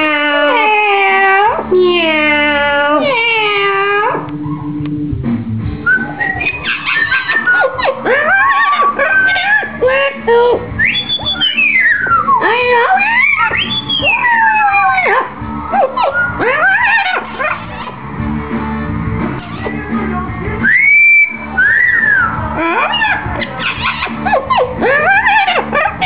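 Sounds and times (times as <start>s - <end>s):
parrot whistling: 5.8s - 18.0s, 20.6s - 26.0s.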